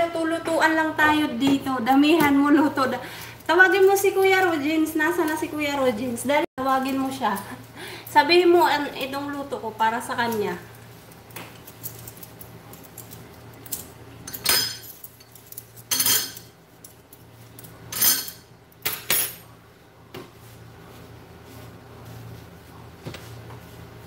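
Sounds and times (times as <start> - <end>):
metal spoons clinking: 11.6 - 19.4.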